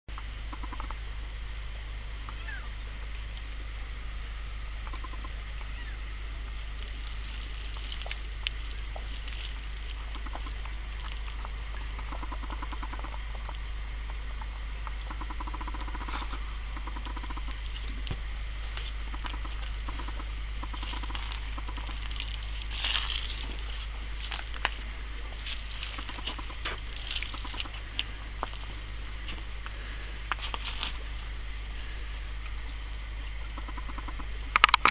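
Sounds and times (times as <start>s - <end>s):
woodpecker drumming: 0.5s - 1.0s, 4.8s - 34.9s
creek water rushing: 1.7s - 33.6s.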